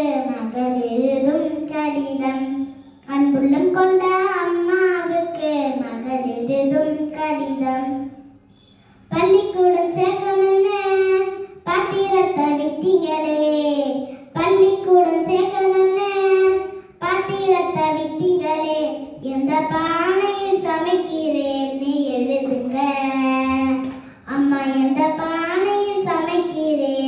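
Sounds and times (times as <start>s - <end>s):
girl singing unaccompanied: 9.1s - 27.0s.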